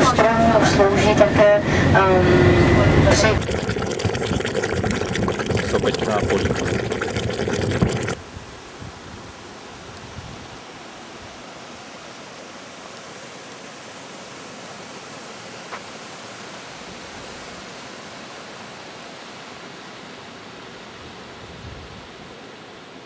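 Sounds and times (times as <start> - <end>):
fumaroles hissing steam: 2.8 - 9.1.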